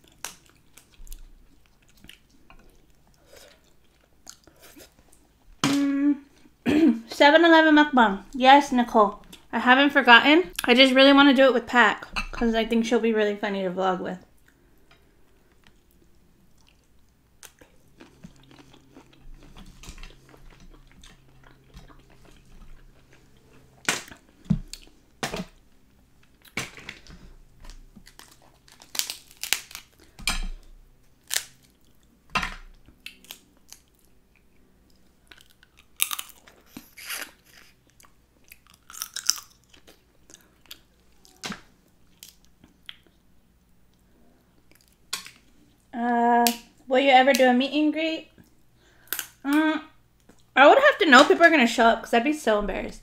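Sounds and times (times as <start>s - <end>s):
chewing seafood: 0.0s - 5.4s, 14.4s - 25.1s, 32.7s - 45.9s
crab shell cracking: 27.6s - 30.2s, 31.2s - 31.9s, 35.3s - 40.0s.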